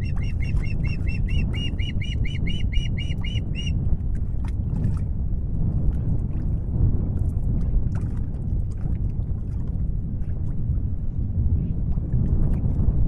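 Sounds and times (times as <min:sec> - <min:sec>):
bird whistled chirps: 0:00.0 - 0:03.7
wind rumble on microphone: 0:00.0 - 0:13.0.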